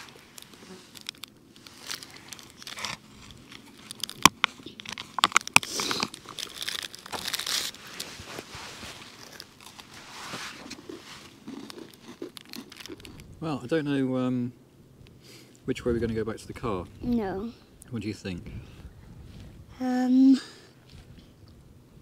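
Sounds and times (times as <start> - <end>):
foil packet crinkling: 0.0 - 13.3.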